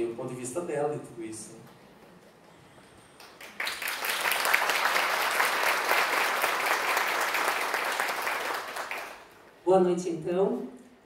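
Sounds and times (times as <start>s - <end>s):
audience applauding: 3.2s - 9.4s.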